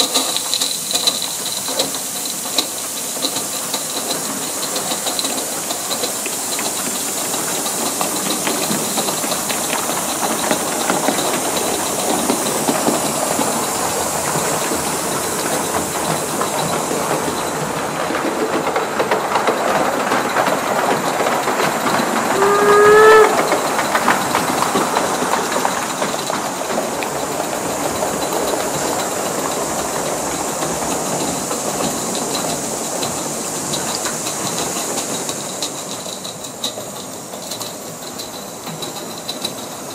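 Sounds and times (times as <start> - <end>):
model steam locomotive running: 0.0 - 39.9
steam whistle blast: 22.3 - 23.8.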